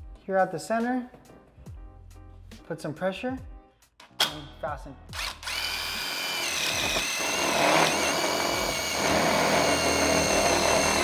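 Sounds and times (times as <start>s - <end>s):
drill motor whining: 5.2s - 11.0s.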